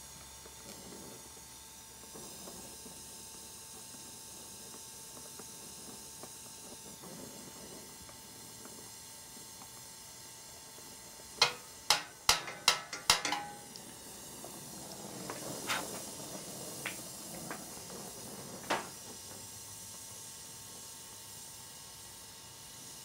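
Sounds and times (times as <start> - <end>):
gas torch hissing: 0.0 - 23.0
sharp metallic knocks: 11.4 - 13.7.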